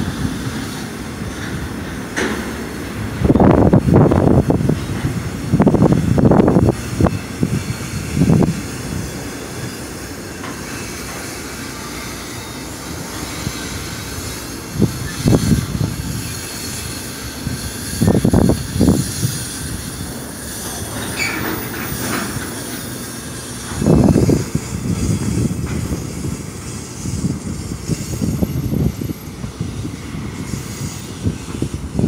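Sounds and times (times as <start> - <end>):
train wheels rumbling and squealing: 0.0 - 32.0.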